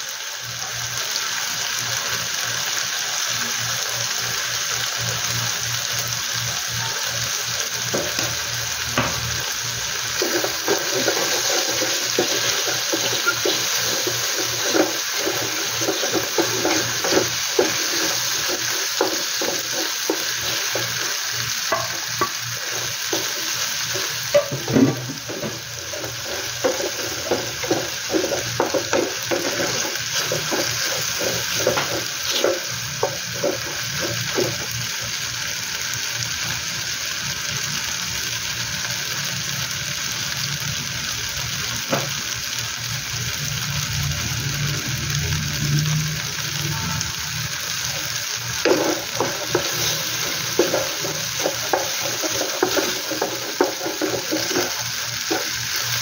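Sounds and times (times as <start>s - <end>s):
vegetables sizzling in oil: 0.0s - 56.0s
wooden spatula scraping pan: 10.2s - 34.7s, 48.6s - 55.6s.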